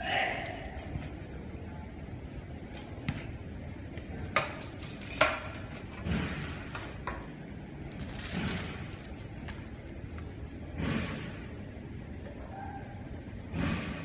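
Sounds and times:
foil crinkling as peeled: 7.9 - 9.3.

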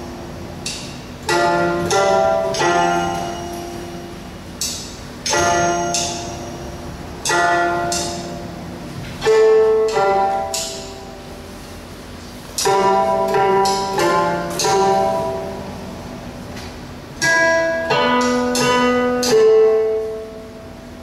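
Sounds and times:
plucked string notes: 0.0 - 11.2, 17.2 - 20.5.

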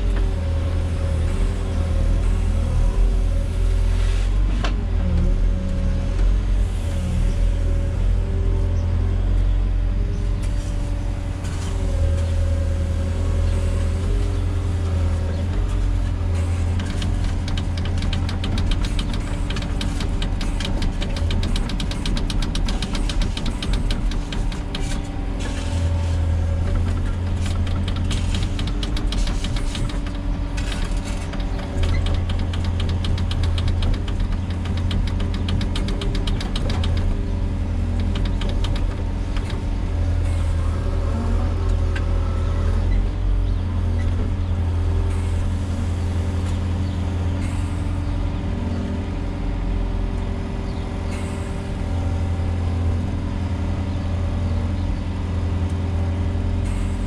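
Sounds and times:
excavator diesel engine running: 0.0 - 57.0
rapid rattle: 15.4 - 40.4.

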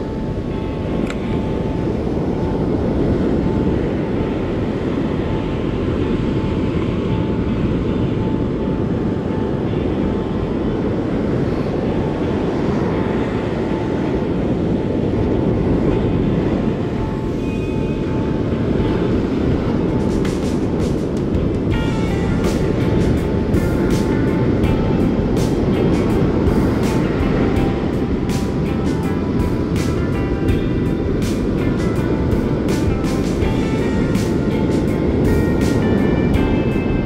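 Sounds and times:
breaking surf: 0.0 - 37.0
wind on microphone: 0.0 - 37.0.

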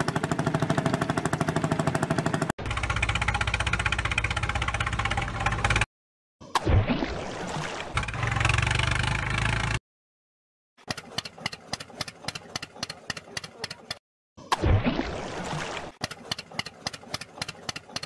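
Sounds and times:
tractor engine sound effect: 0.0 - 5.9, 7.9 - 9.8, 10.8 - 14.0
water splashing: 6.4 - 8.3, 11.0 - 18.0.

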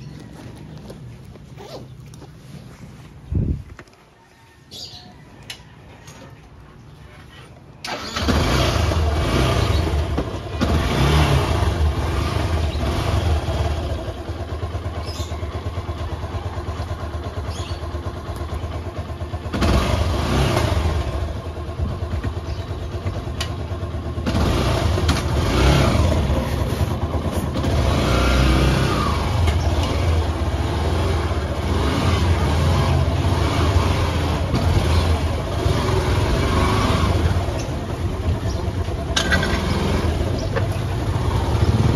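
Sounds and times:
road and wind noise: 0.0 - 7.2, 7.8 - 18.6, 19.5 - 41.9
vehicle engine accelerating: 7.8 - 18.7, 19.4 - 41.9.

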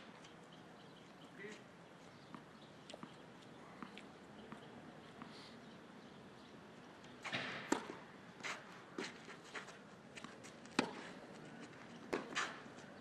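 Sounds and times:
racket hitting tennis ball: 7.2 - 9.2, 10.7 - 11.1.

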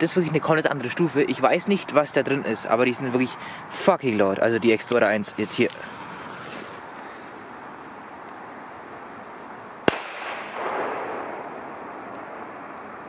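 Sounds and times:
firecracker bang: 9.8 - 12.5
echo of bang: 9.9 - 11.6.

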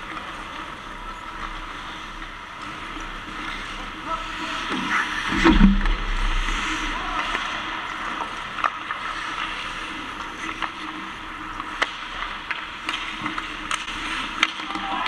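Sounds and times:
hockey sticks and puck clacking: 7.1 - 15.0
skate blades scraping ice: 8.2 - 15.0.

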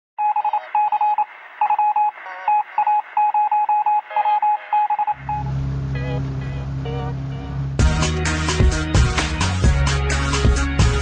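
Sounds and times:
electronic high-pitched beeps: 0.2 - 5.5
low music drone: 5.2 - 11.0.

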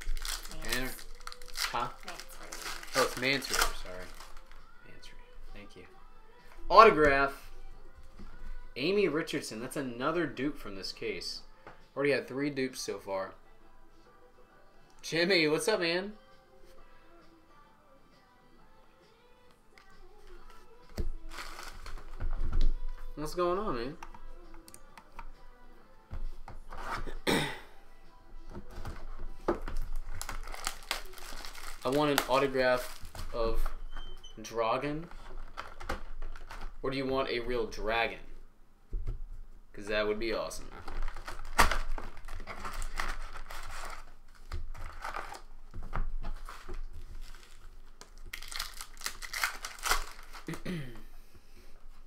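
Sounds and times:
foil packs crinkling and rustling: 0.0 - 4.7, 21.2 - 22.3, 29.6 - 33.8, 35.0 - 36.8, 40.6 - 50.6
hands rubbing plastic-wrapped box: 21.3 - 22.1.

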